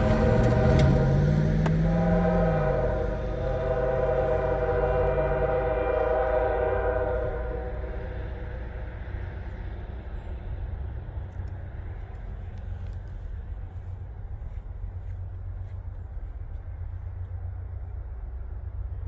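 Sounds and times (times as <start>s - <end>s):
locomotive air horn: 0.0s - 8.8s
locomotive rumble: 0.0s - 19.0s.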